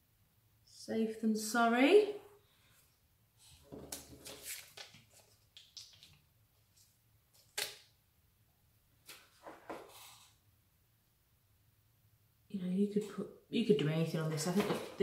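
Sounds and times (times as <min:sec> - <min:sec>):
plastic sheet rustling and crinkling: 0:03.8 - 0:06.1.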